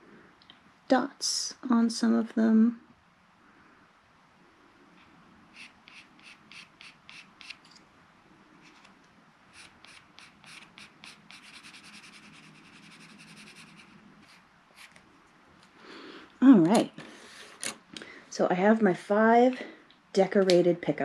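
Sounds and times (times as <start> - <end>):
marker scratchy strokes: 5.0 - 7.7, 9.5 - 15.0.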